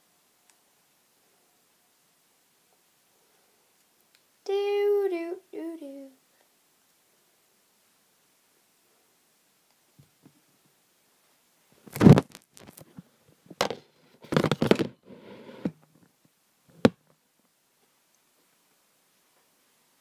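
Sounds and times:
camera handling scrapes and bumps: 0:11.9 - 0:13.0, 0:13.6 - 0:15.0.

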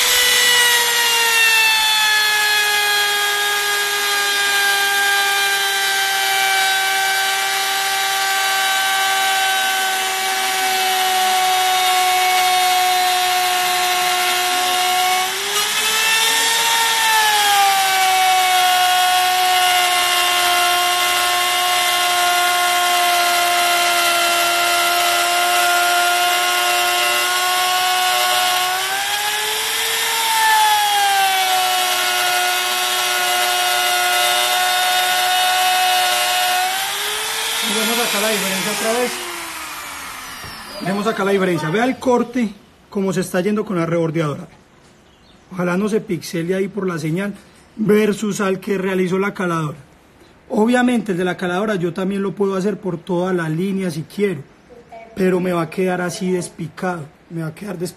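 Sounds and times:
trim router high whine: 0:00.0 - 0:41.9.

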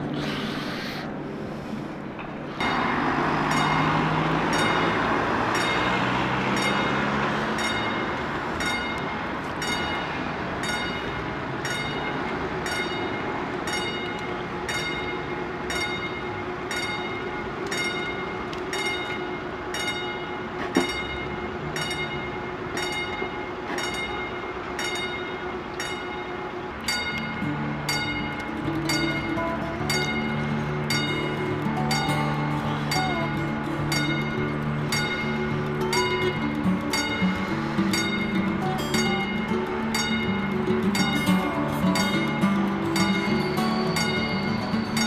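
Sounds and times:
steady low hum: 0:00.0 - 0:03.7
road traffic passing: 0:00.0 - 0:45.0
level crossing warning bell: 0:02.6 - 0:45.0.

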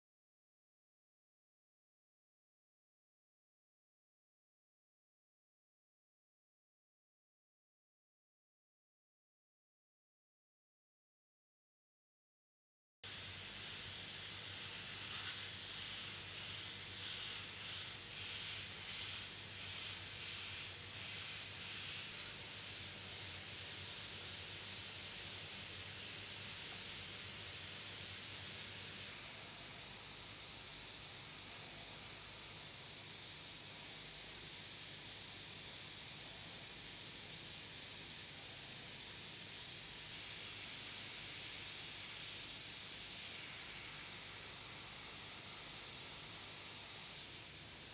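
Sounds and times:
airbrush hissing: 0:13.1 - 0:29.4, 0:39.6 - 0:47.9.

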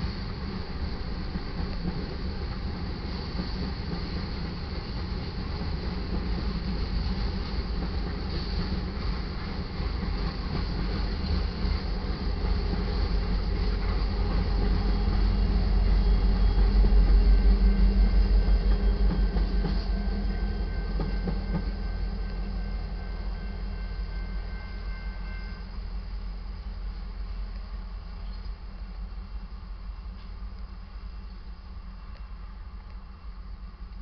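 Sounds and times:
train wheels clacking over rails: 0:00.0 - 0:26.0
diesel locomotive passing: 0:00.0 - 0:34.0.

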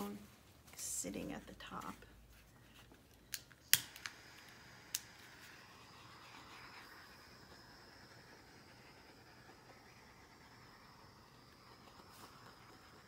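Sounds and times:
torch igniter clicks: 0:03.3 - 0:05.2
faint hiss of torch flame: 0:03.6 - 0:13.0.

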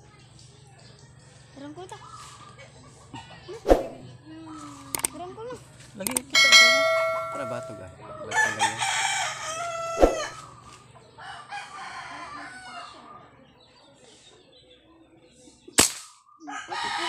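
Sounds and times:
rooster crowing: 0:08.2 - 0:10.4, 0:11.2 - 0:13.0, 0:16.5 - 0:17.0
sharp crack: 0:15.8 - 0:16.2.

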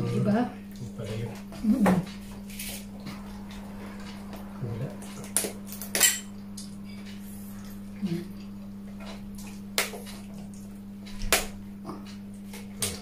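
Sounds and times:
low hum: 0:00.0 - 0:12.0
dishes clinking: 0:05.2 - 0:07.0.

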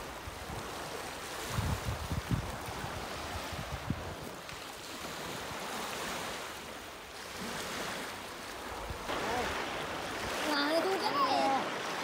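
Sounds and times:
wind buffeting microphone: 0:00.0 - 0:04.6
waves washing onto shore: 0:00.0 - 0:12.0.

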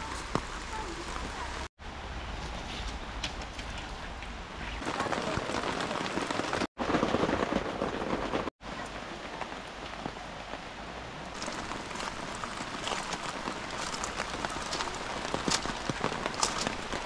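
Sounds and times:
heavy rain on tent: 0:03.5 - 0:17.0.

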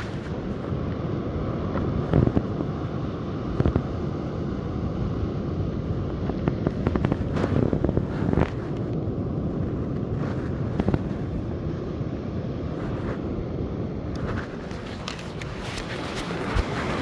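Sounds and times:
sunglasses and clothing rustling: 0:00.0 - 0:00.8, 0:06.4 - 0:11.5, 0:14.0 - 0:17.0
surf: 0:00.0 - 0:17.0
wind rumbling on microphone: 0:00.0 - 0:17.0.

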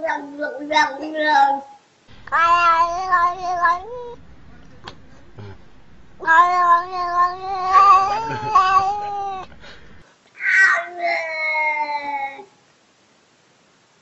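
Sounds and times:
cat meowing: 0:02.2 - 0:09.6.

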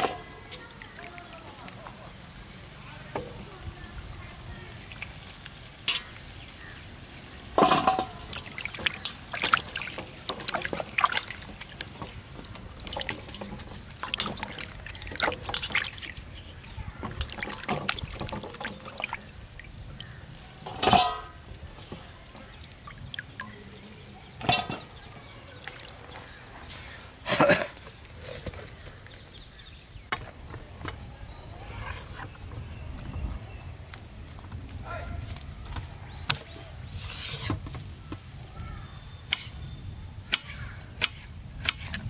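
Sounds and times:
water splashing and dripping: 0:00.0 - 0:27.2
knocks in steel bowl: 0:07.6 - 0:08.2, 0:20.7 - 0:21.4.

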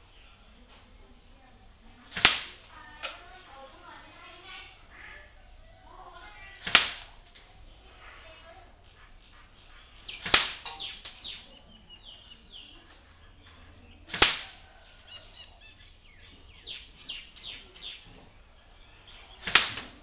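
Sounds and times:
small birds chirping: 0:00.0 - 0:20.0
airsoft rifle shot cracks: 0:02.1 - 0:02.7, 0:06.6 - 0:07.2, 0:10.2 - 0:11.2, 0:14.1 - 0:14.6, 0:19.4 - 0:20.0.

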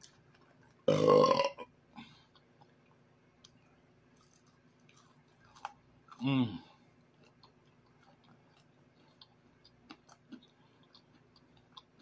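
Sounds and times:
man burping: 0:00.9 - 0:01.7.

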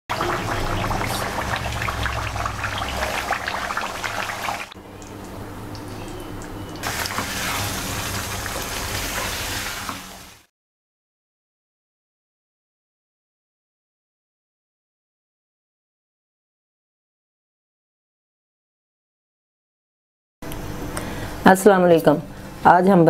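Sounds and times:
gravy bubbling and sizzling in a wok: 0:00.1 - 0:10.5.

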